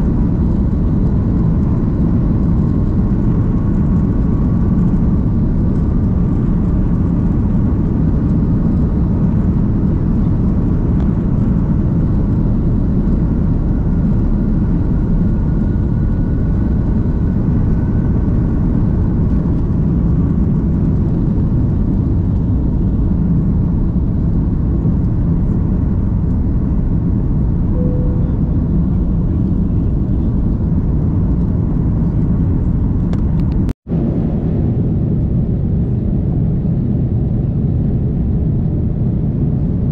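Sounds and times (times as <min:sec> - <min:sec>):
jet engine rumble in cabin: 0:00.0 - 0:39.9
faint rising whine: 0:27.6 - 0:32.3.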